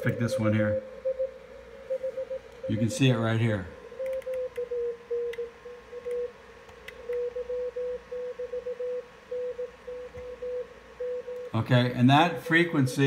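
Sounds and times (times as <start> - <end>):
morse code beeps: 0.0 - 3.4, 7.1 - 11.6.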